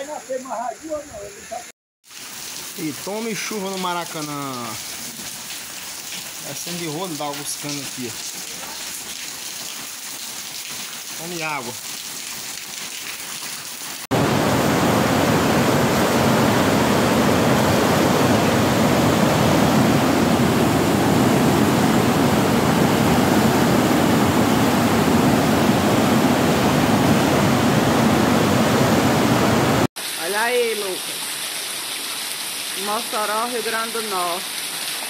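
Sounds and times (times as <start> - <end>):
rain falling: 0.1 - 35.0
river rushing in flood: 14.1 - 35.0.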